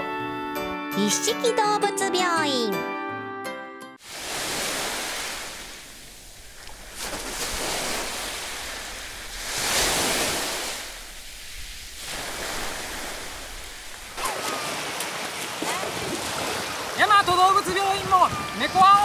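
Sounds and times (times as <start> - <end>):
sea waves on beach: 4.0 - 19.0
running through shallow water: 4.1 - 19.0.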